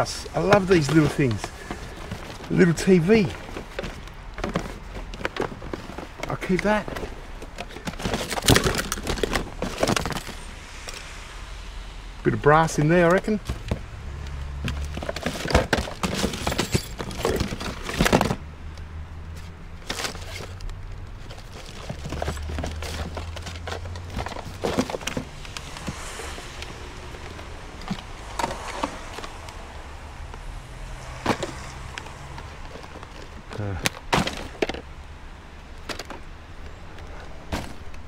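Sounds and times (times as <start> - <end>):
junk knocking and clattering: 0.0 - 10.4, 14.6 - 29.6, 30.9 - 35.0.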